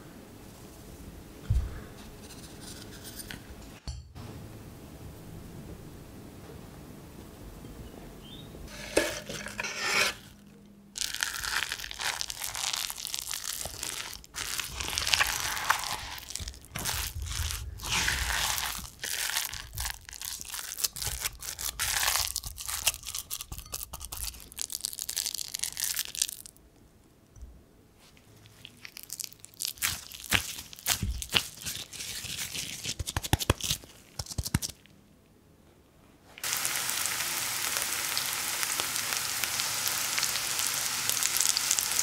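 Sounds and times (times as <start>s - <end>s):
spatula scraping wet mixture: 8.7s - 10.4s, 13.6s - 22.9s, 29.8s - 33.0s
hands pressing mixture: 11.0s - 24.7s, 29.6s - 34.8s.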